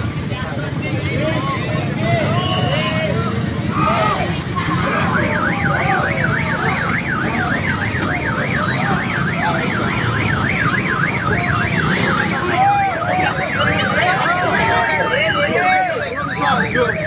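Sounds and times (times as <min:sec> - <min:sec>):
crowd voices chattering: 0:00.0 - 0:17.0
car alarm warbling: 0:04.0 - 0:17.0.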